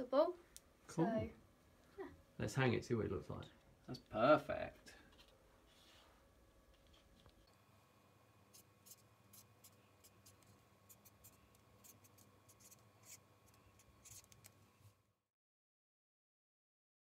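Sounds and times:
pen scratching on paper: 0:08.5 - 0:14.5.

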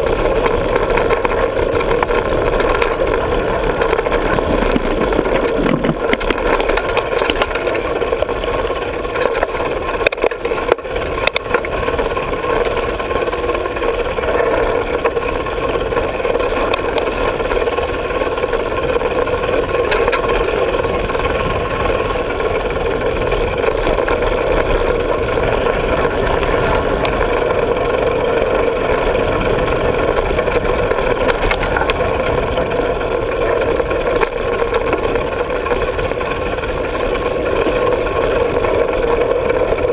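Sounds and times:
bike knocking over bumps: 0:00.0 - 0:08.4
wind on microphone: 0:00.0 - 0:08.5
mountain bike rumbling and rattling: 0:00.0 - 0:39.9.

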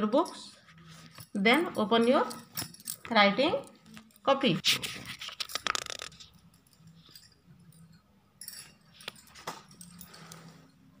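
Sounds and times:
paper page rustling: 0:04.7 - 0:06.2.

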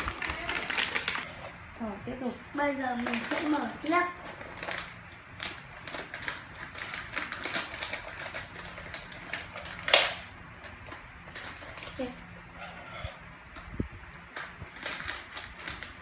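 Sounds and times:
plastic wrapper crinkling: 0:00.0 - 0:01.3, 0:02.9 - 0:12.1, 0:14.3 - 0:16.0
scissors cutting plastic packet: 0:00.0 - 0:01.3, 0:03.0 - 0:12.1, 0:14.3 - 0:16.0.

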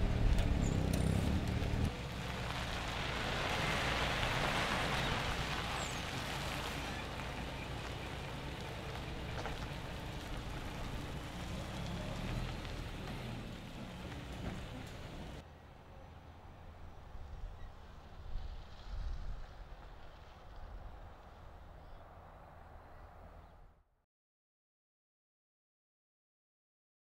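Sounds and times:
lorry diesel engine running: 0:00.0 - 0:18.3.

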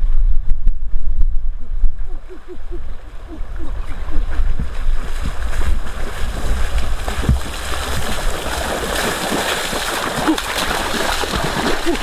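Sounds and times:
wind rumble on microphone: 0:00.0 - 0:12.0
water splashing and churning: 0:02.1 - 0:12.0.

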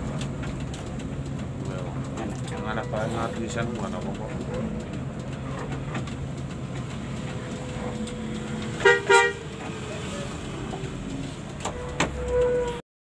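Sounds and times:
bus engine running: 0:00.0 - 0:12.8
bus horn blasts: 0:08.7 - 0:09.6, 0:11.7 - 0:12.8.

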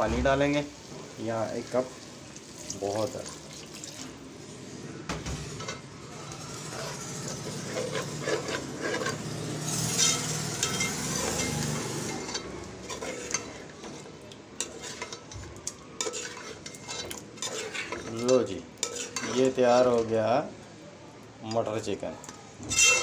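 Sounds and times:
food sizzling: 0:00.0 - 0:23.0
water poured into hot pot: 0:01.7 - 0:04.2
metal spoon scraping metal pot: 0:06.7 - 0:15.4, 0:16.0 - 0:20.1, 0:22.7 - 0:23.0.

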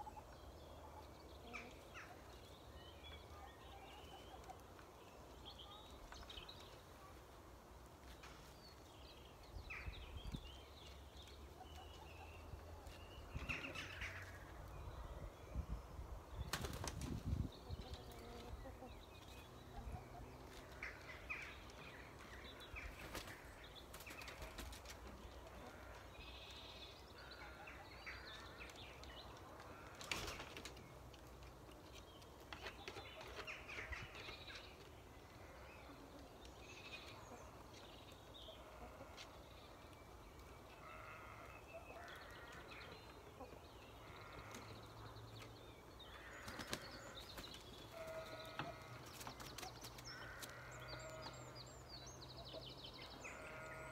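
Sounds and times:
wings flapping in branches: 0:16.5 - 0:17.3.

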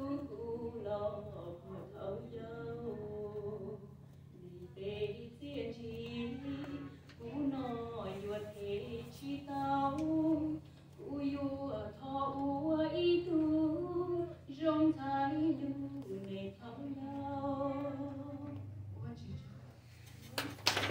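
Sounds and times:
woman singing: 0:00.0 - 0:18.7.

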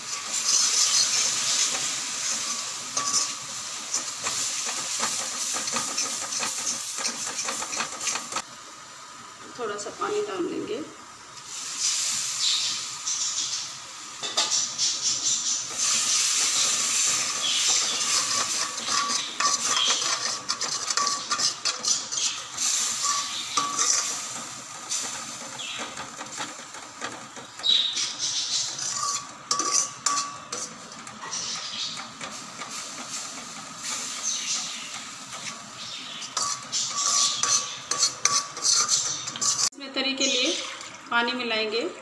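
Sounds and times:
steel ladle scraping a pan: 0:00.0 - 0:08.4, 0:15.7 - 0:39.7
water sizzling in a hot pan: 0:00.0 - 0:41.9.

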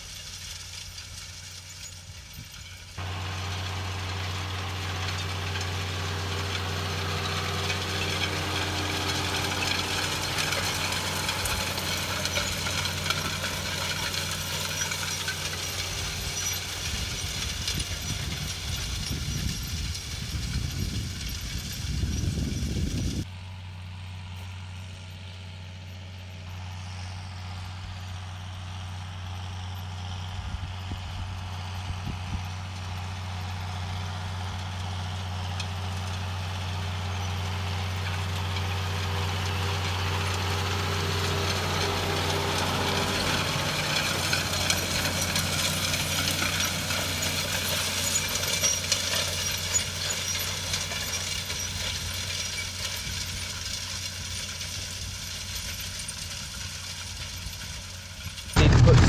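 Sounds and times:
clattering mechanical noise: 0:00.0 - 0:23.3, 0:30.8 - 0:59.0
tractor engine running: 0:00.0 - 0:59.0.

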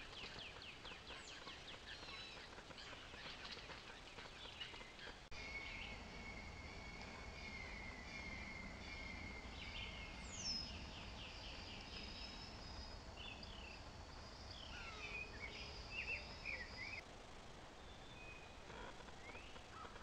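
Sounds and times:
birds calling: 0:00.0 - 0:17.0.

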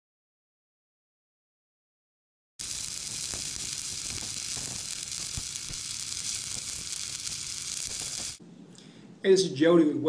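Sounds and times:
welding arc sizzling: 0:02.6 - 0:08.4.

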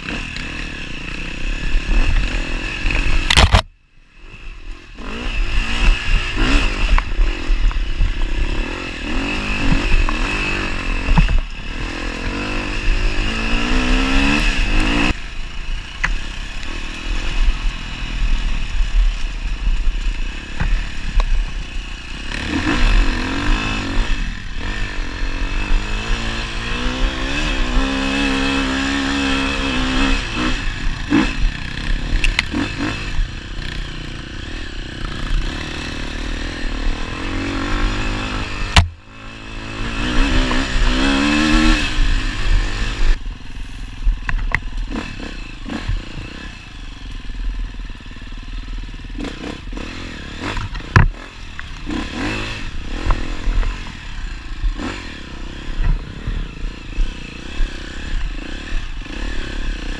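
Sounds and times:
dirt bike engine revving: 0:00.0 - 0:59.9
sharp knocks: 0:38.7 - 0:39.0.

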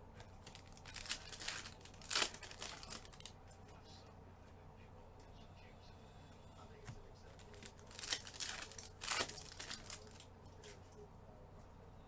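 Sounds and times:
wrapper crinkling and tearing: 0:00.2 - 0:03.4, 0:07.3 - 0:10.3.

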